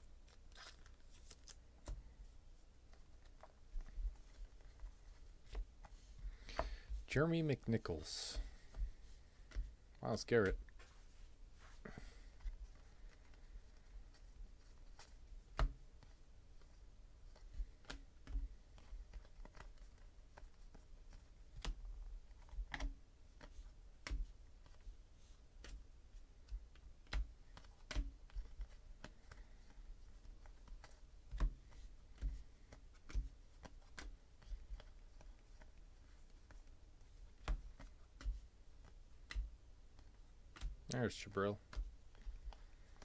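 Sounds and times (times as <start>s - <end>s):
trading cards clicking and snapping: 14.8s - 24.8s, 26.4s - 43.0s.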